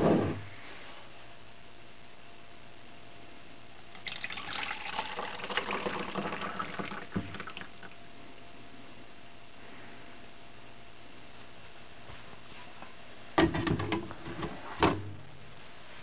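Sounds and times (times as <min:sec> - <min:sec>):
liquid pouring and splashing: 0:03.9 - 0:07.8.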